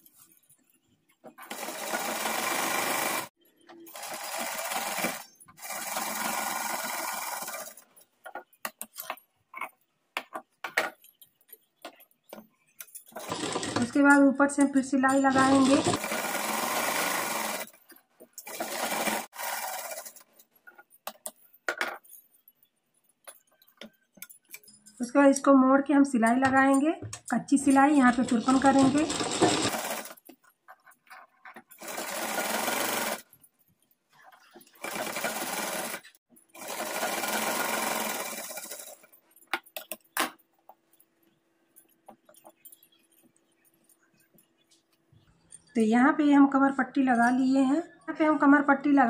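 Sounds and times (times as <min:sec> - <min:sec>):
sewing machine stitching: 0:01.4 - 0:03.3, 0:03.9 - 0:07.8, 0:13.1 - 0:14.0, 0:15.1 - 0:17.8, 0:18.4 - 0:20.2, 0:27.9 - 0:30.2, 0:31.7 - 0:33.3, 0:34.5 - 0:39.1.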